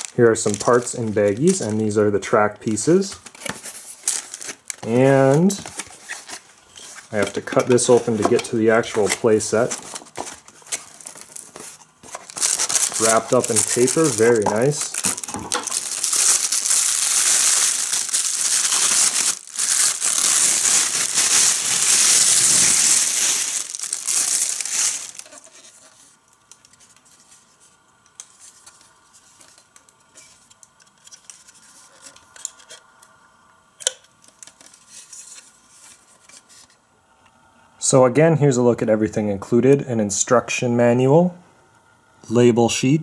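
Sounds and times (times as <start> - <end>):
wrapping crinkling and tearing: 0.0 - 27.5.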